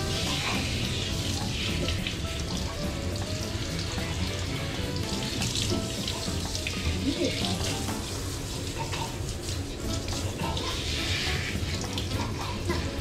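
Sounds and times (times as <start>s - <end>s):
shower water spraying and splashing: 0.0s - 13.0s.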